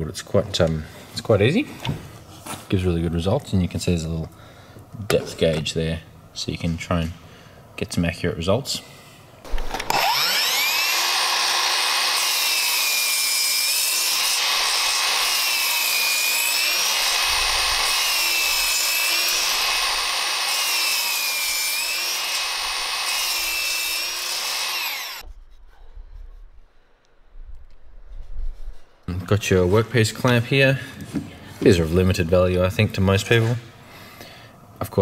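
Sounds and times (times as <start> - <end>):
mitre saw cutting wood: 9.7 - 25.3.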